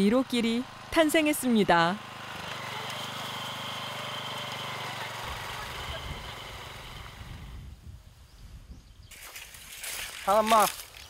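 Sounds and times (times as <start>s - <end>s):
small motor humming with whine: 0.0s - 7.8s.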